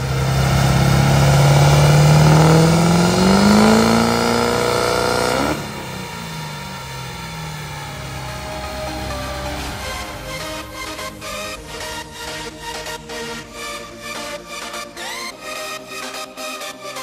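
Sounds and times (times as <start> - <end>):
truck engine revving: 0.0 - 15.5.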